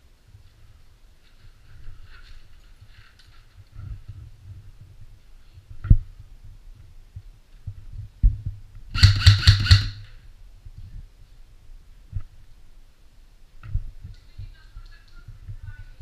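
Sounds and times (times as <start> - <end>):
airsoft rifle shots: 8.9 - 10.2.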